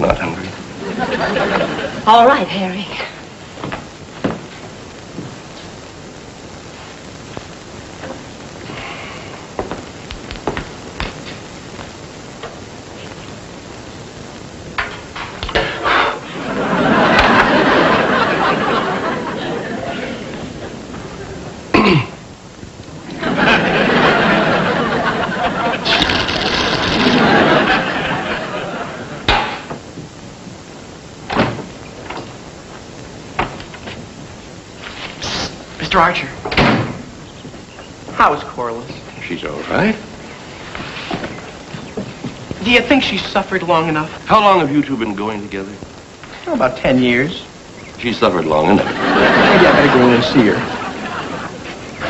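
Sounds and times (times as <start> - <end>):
soundtrack hiss: 0.0 - 52.0
door thump: 31.3 - 32.3, 36.4 - 37.1.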